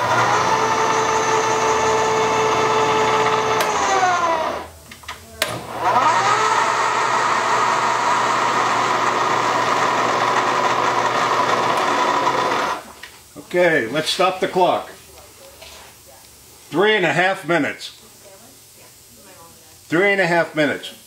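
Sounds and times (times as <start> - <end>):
milling machine motor humming: 0.0 - 4.8, 5.4 - 12.9.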